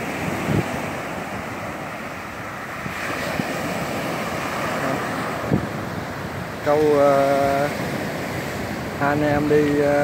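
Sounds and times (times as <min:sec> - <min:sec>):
ocean waves breaking on beach: 0:00.0 - 0:10.0
wind: 0:00.0 - 0:10.0.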